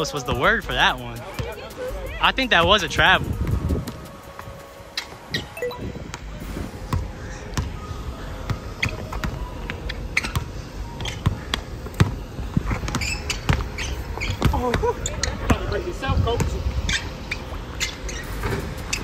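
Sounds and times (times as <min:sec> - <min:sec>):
sneaker squeaks: 0:08.7 - 0:15.7, 0:16.9 - 0:19.0
basketball dribbling on court: 0:10.2 - 0:14.8.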